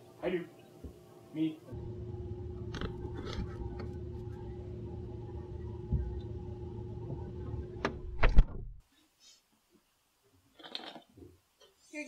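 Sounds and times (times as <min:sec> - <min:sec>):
freezer humming: 0:01.7 - 0:08.8.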